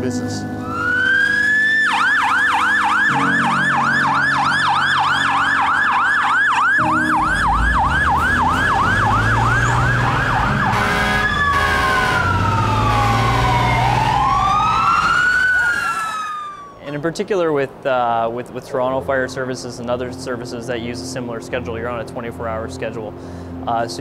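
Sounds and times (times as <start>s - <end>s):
fire truck siren: 0.6s - 16.9s.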